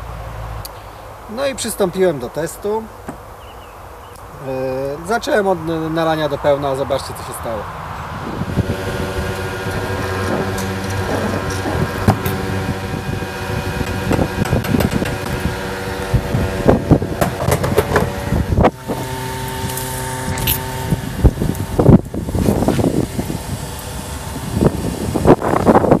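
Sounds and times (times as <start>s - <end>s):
fuel pump humming: 7.9s - 26.0s
handling clicks and knocks: 17.2s - 18.2s.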